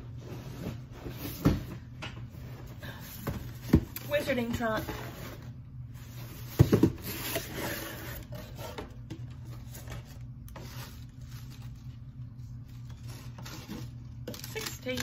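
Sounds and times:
low steady hum: 0:00.0 - 0:15.0
cardboard and paper rustling: 0:03.1 - 0:15.0.

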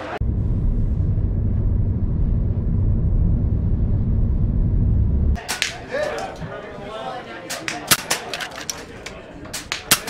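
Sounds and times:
car road and engine rumble: 0:00.2 - 0:05.4
sharp crack: 0:05.4 - 0:06.4, 0:07.5 - 0:10.0.

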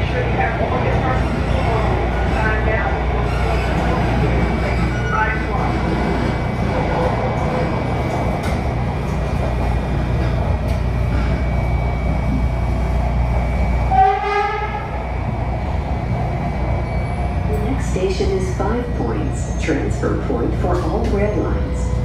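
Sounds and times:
train rumbling: 0:00.0 - 0:22.0.

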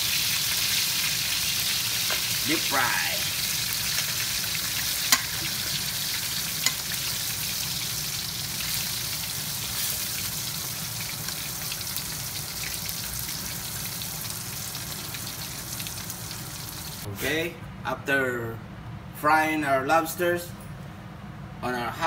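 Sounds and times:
food sizzling in hot oil: 0:00.0 - 0:17.1.

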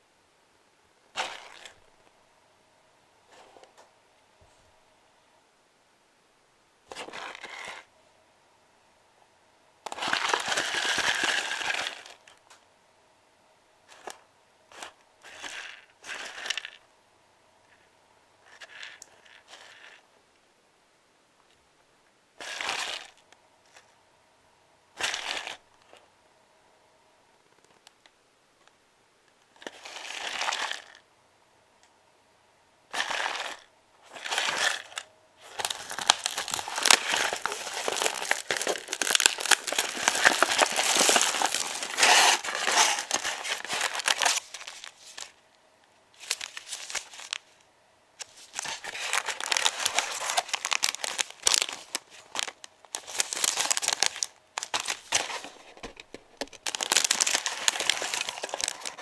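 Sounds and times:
plastic film crinkling: 0:09.9 - 0:12.2, 0:33.0 - 0:45.4, 0:46.2 - 0:47.5, 0:48.2 - 0:59.0.

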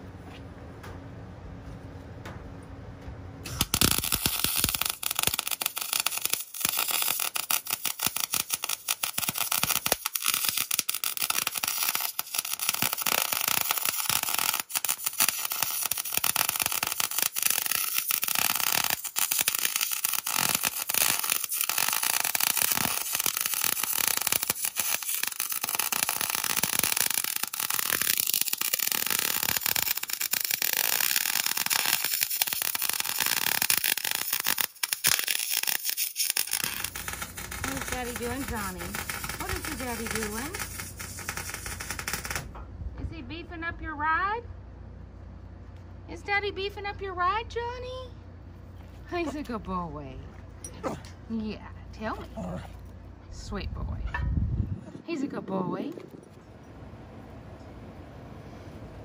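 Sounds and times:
arc welder crackling: 0:03.4 - 0:42.6.

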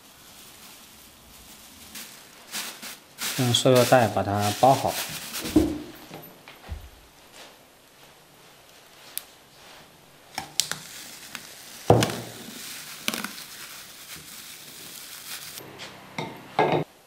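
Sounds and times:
plastic bag crinkling: 0:00.0 - 0:06.3, 0:10.5 - 0:15.6.

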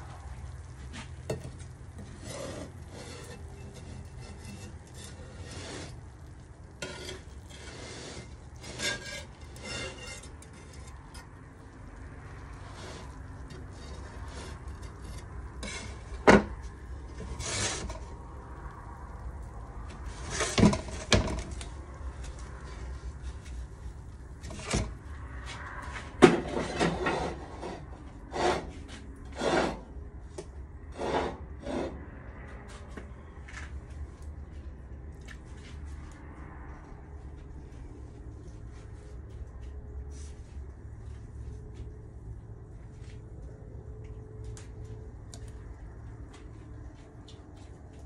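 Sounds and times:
steady low rumble: 0:17.9 - 0:20.8.

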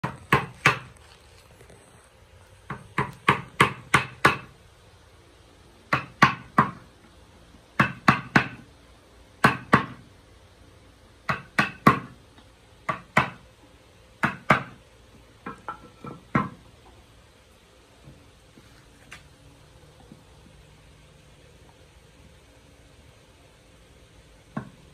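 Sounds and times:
mallet striking chisel into wood: 0:00.0 - 0:00.9, 0:02.7 - 0:04.5, 0:05.9 - 0:06.9, 0:07.8 - 0:08.6, 0:09.4 - 0:10.0, 0:11.3 - 0:12.2, 0:12.8 - 0:13.4, 0:14.2 - 0:14.8, 0:15.4 - 0:16.6.

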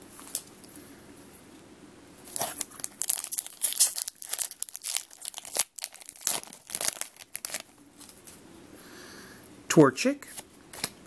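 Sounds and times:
foil pack crinkling and tearing: 0:02.3 - 0:07.7.

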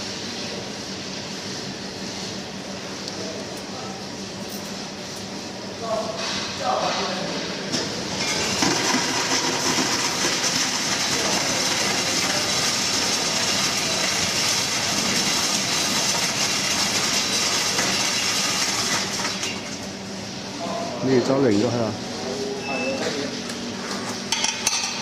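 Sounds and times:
ice cubes clattering into bucket: 0:08.2 - 0:19.7.

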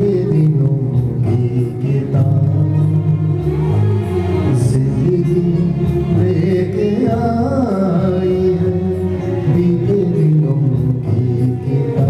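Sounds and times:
instrumental backing music: 0:00.0 - 0:12.0
man singing into a microphone: 0:00.0 - 0:12.0.

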